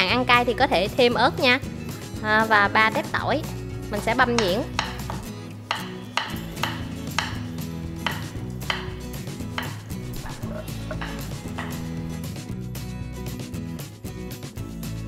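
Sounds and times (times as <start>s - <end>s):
soft background music: 0.0s - 15.0s
knife tapping on wooden board: 4.4s - 12.2s.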